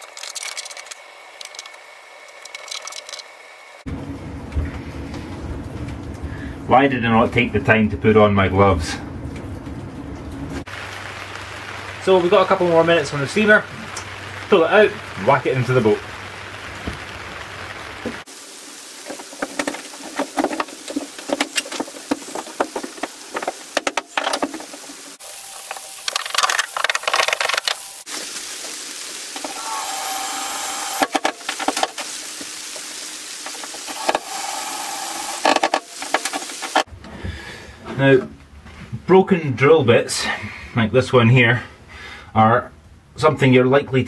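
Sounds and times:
steady hiss: 10.6 - 36.9
wooden knocks and clatter: 19.0 - 25.2
wood squealing: 29.4 - 32.2.

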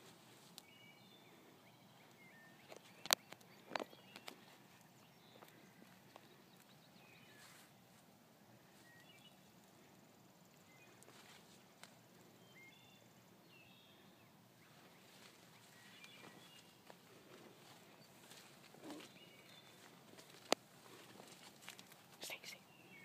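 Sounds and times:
leaves rustling: 0.0 - 0.7, 10.8 - 12.0, 14.6 - 22.4
small birds chirping: 0.0 - 23.0.

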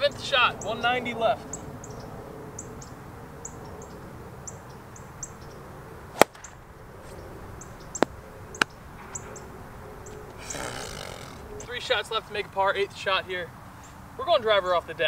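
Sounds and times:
golf club striking ball: 6.2 - 7.2.

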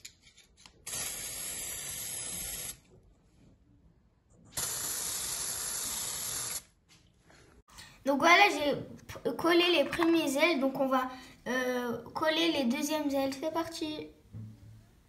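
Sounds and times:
spray paint can hissing: 0.9 - 2.8, 4.6 - 6.7.

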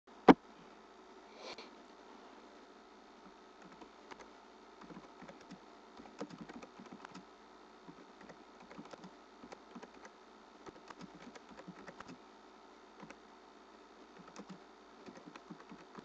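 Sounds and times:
steady low hum: 0.1 - 16.0.

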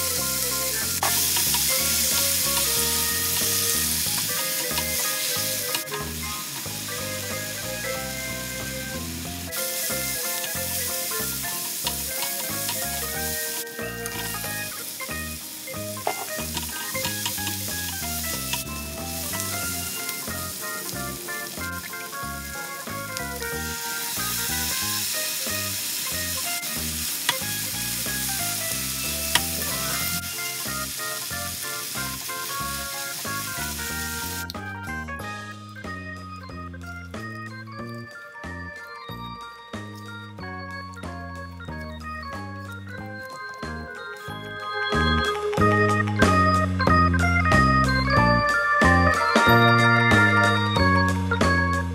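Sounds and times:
paste sizzling in a frying pan: 0.0 - 34.6
background music: 0.0 - 51.9
spatula stirring: 1.0 - 6.8, 9.5 - 34.4.

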